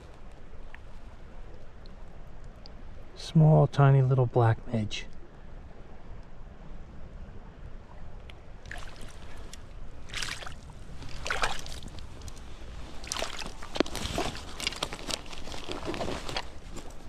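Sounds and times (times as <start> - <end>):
water splashing: 8.6 - 16.6.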